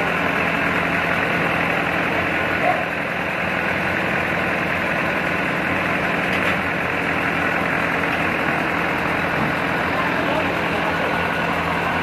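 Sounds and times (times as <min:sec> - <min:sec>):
band sawmill machine drone: 0:00.0 - 0:12.0.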